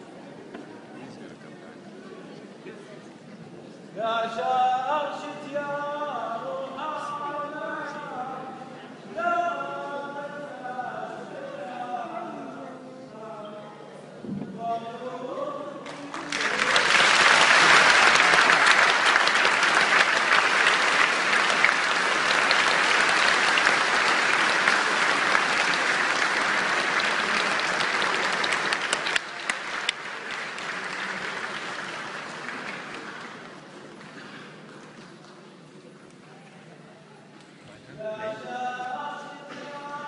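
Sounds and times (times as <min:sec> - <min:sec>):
large crowd applauding: 0:15.8 - 0:35.4.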